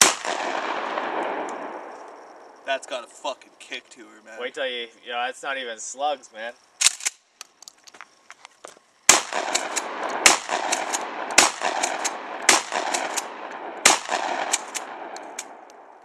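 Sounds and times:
shotgun shots with echo: 0:00.0 - 0:01.8, 0:09.1 - 0:15.9.

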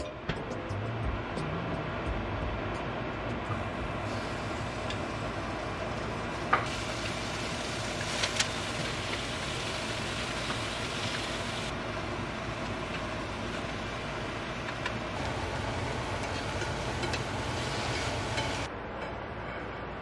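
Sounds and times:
beef sizzling in a frying pan: 0:06.6 - 0:11.7.

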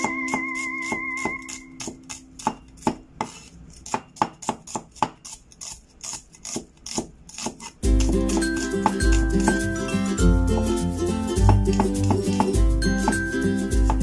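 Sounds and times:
soft ukulele music: 0:00.0 - 0:00.9, 0:07.8 - 0:14.0
cleaver chopping on wooden board: 0:00.0 - 0:05.3, 0:06.4 - 0:09.7, 0:11.4 - 0:14.0.

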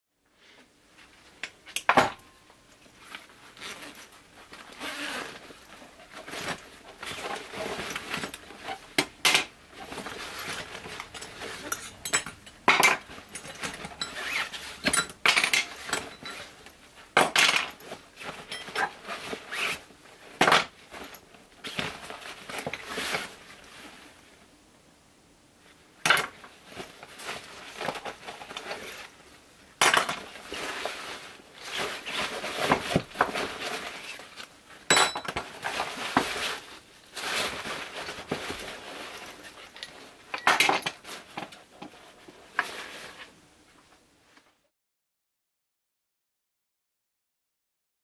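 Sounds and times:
fabric bag rustling: 0:02.8 - 0:12.2, 0:30.2 - 0:34.8, 0:35.5 - 0:40.3
metal tools clinking on wood: 0:09.3 - 0:17.8, 0:18.4 - 0:18.8, 0:34.9 - 0:35.4.

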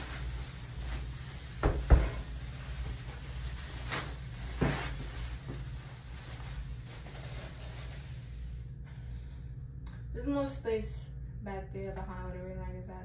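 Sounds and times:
plastic wrapping rustling: 0:00.0 - 0:08.6.

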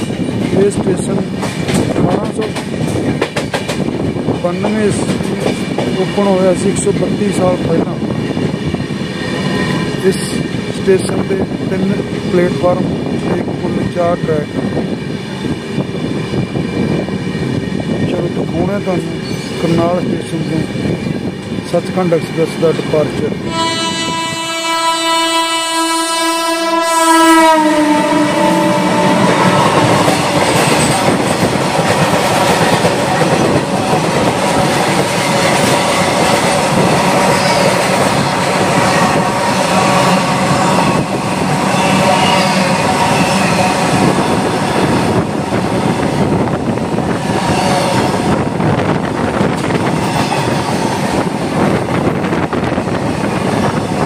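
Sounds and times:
train wheels clattering on rails: 0:00.0 - 0:23.4, 0:28.7 - 0:54.0
train horn: 0:23.4 - 0:30.8, 0:39.0 - 0:40.9, 0:41.6 - 0:44.0, 0:47.4 - 0:48.3.

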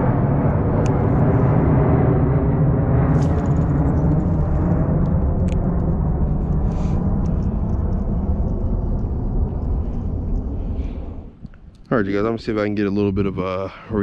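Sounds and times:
low rumble of plane flying over: 0:00.0 - 0:14.0.

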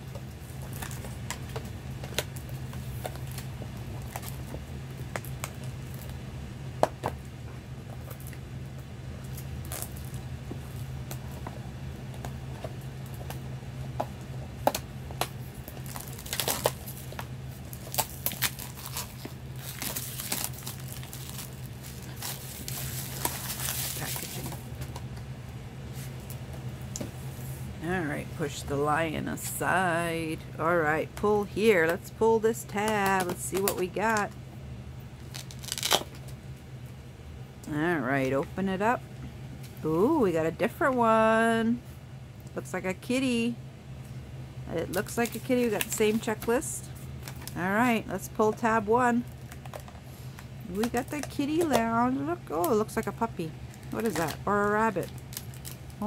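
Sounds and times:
plastic wrap crinkling and tearing: 0:00.4 - 0:06.2, 0:09.2 - 0:11.3, 0:15.2 - 0:24.8, 0:35.2 - 0:36.4, 0:45.0 - 0:46.4, 0:53.6 - 0:56.0.

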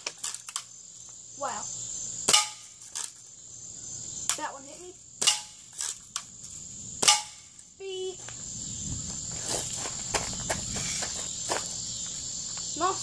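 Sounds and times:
handling clicks and scuffs: 0:00.0 - 0:01.2, 0:05.2 - 0:12.7
high insect buzz: 0:00.0 - 0:13.0.

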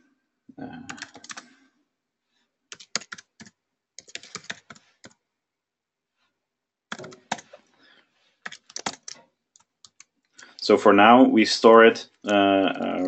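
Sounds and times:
computer keyboard typing: 0:00.8 - 0:01.5, 0:02.7 - 0:05.2, 0:06.9 - 0:07.6, 0:08.4 - 0:10.2, 0:12.2 - 0:13.0.

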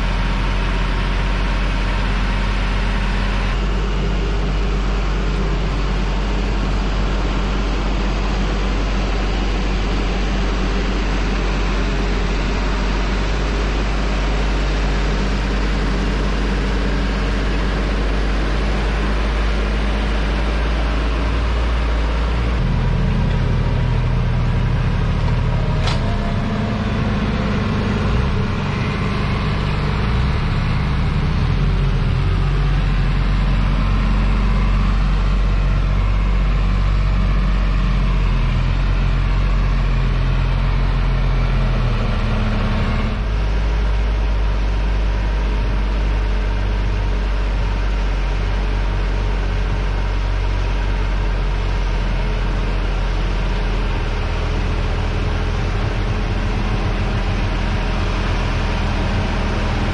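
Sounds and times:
tractor diesel engine under load: 0:00.0 - 0:59.9.

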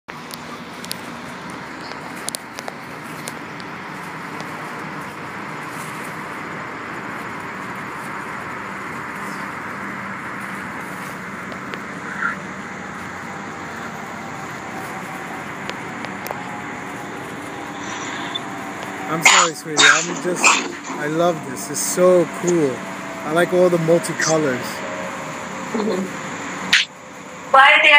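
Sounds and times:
low engine hum: 0:00.1 - 0:27.9
water cannons spraying: 0:07.2 - 0:25.9.

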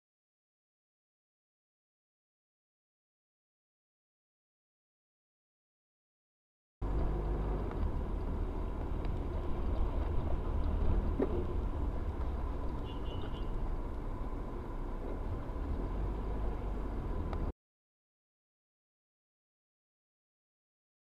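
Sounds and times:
car engine rumble: 0:06.8 - 0:17.5
tyres on the road: 0:06.8 - 0:17.6.

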